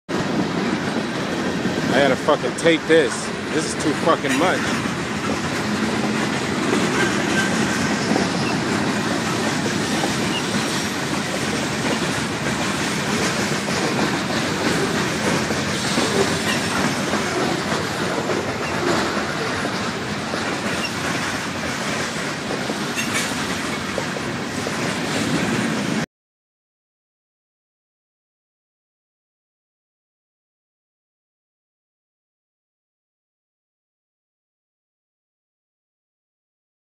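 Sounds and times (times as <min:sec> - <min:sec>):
train wheels rolling on rails: 0:00.1 - 0:26.0.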